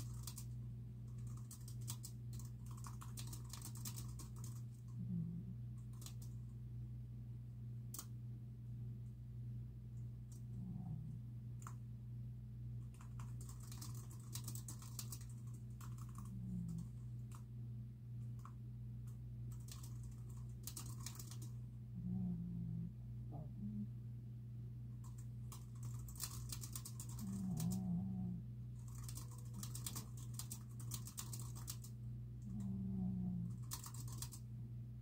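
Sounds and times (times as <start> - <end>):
typing on computer keyboard: 0.0 - 0.5, 1.1 - 4.8, 5.8 - 6.4, 12.8 - 17.4, 18.4 - 21.6, 25.0 - 27.9, 28.8 - 32.6, 33.5 - 34.4
steady low hum: 0.0 - 35.0.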